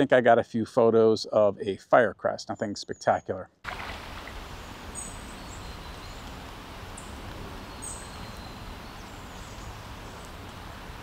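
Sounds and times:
background hiss: 3.7s - 11.0s.

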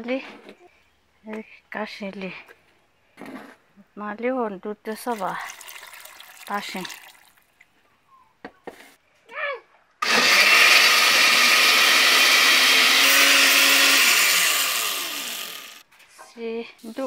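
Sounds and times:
electric blender running: 10.0s - 15.8s.

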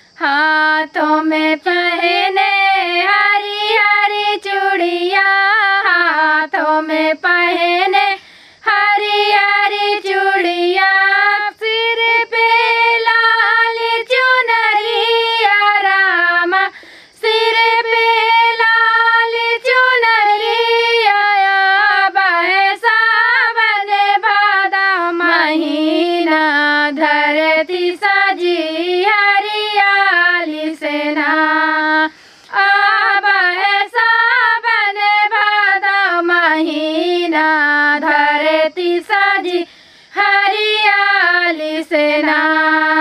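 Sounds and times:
women singing: 0.0s - 43.0s.

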